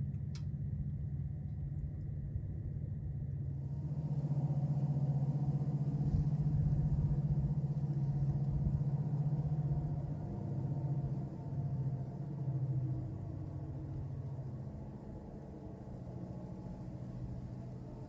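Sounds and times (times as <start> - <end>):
low engine rumble: 0.0 - 18.0.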